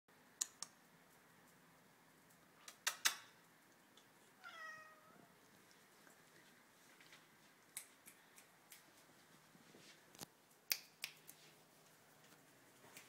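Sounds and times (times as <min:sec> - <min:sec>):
cat meowing: 0:04.4 - 0:05.3.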